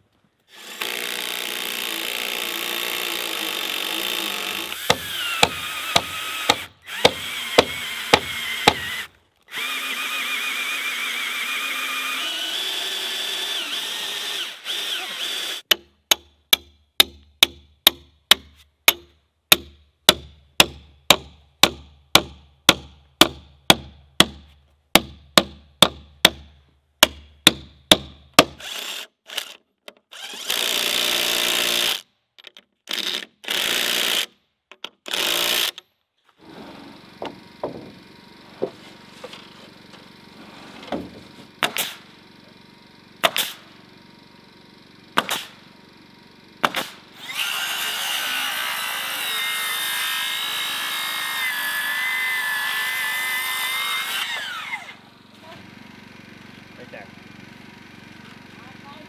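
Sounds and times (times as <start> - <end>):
power drill running: 0.5 - 15.7, 28.6 - 32.0, 36.7 - 40.4, 41.2 - 59.0
sharp knocks: 37.2 - 38.0.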